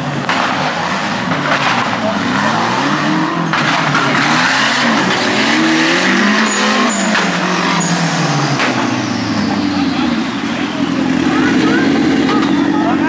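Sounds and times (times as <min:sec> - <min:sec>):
buggy engine revving: 0:00.0 - 0:13.0.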